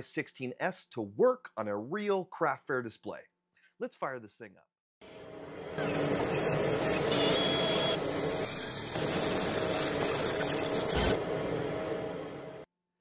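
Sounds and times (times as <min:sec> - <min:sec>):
laser cutter hum and hiss: 0:05.8 - 0:12.6.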